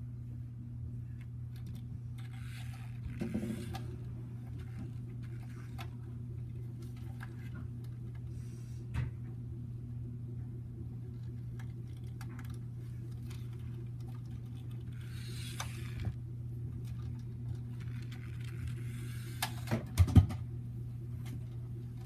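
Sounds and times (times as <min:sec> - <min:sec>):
toy car motor hum: 0:01.6 - 0:06.0, 0:12.0 - 0:16.2, 0:17.6 - 0:19.7.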